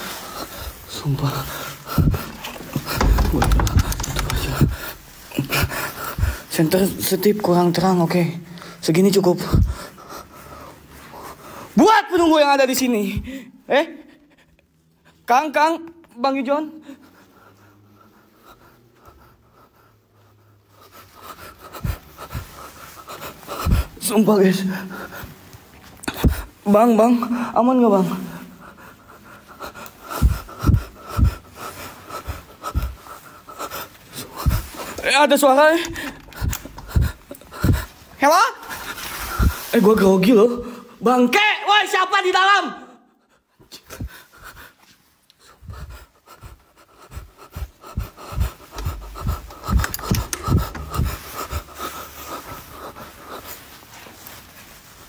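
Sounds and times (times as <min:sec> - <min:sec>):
person breathing heavily: 0:00.0 - 0:06.6, 0:08.5 - 0:11.8, 0:16.7 - 0:24.0, 0:27.2 - 0:39.9, 0:43.1 - 0:55.0
heavy panting: 0:00.0 - 0:07.8, 0:08.5 - 0:11.8, 0:16.7 - 0:41.0, 0:43.1 - 0:55.0
phone handling rustling and knocks: 0:02.0 - 0:05.0.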